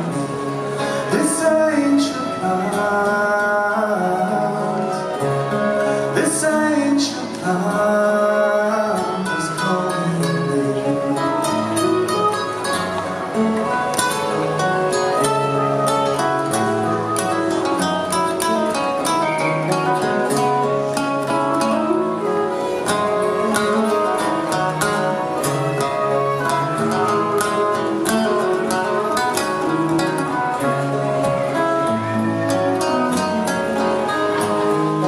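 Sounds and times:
acoustic guitars picked and strummed: 0:00.0 - 0:35.0
fiddles bowing melody: 0:10.7 - 0:35.0.

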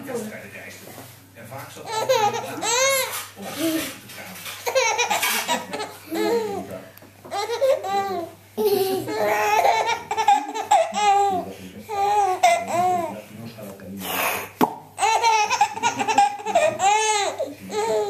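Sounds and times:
baby laughing: 0:01.8 - 0:04.0, 0:04.6 - 0:06.7, 0:07.3 - 0:13.1, 0:14.1 - 0:18.0.

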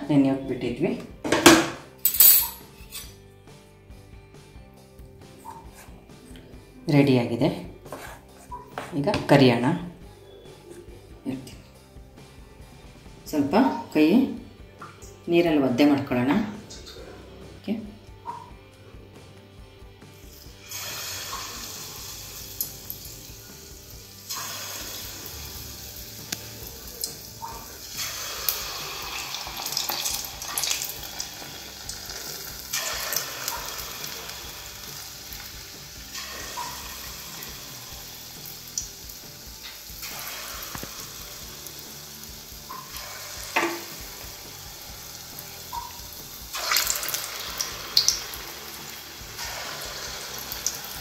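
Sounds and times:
dough sizzling in hot oil: 0:20.2 - 0:51.0
oil popping and spitting: 0:24.3 - 0:34.2, 0:36.1 - 0:37.9, 0:39.6 - 0:41.2, 0:42.7 - 0:44.2, 0:45.7 - 0:48.4.

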